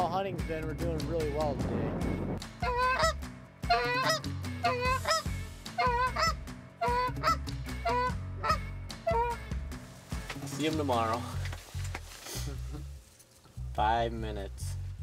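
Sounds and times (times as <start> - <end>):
goose honking: 2.6 - 9.5.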